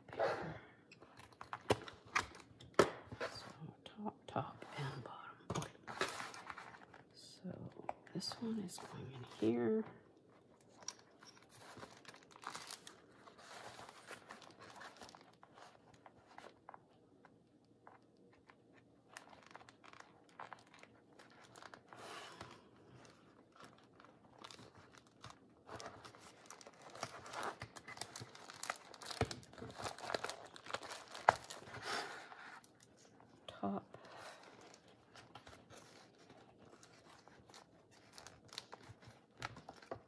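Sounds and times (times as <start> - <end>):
paper pages rustling: 5.8 - 7.1, 10.3 - 16.8, 17.8 - 33.3, 34.0 - 40.0.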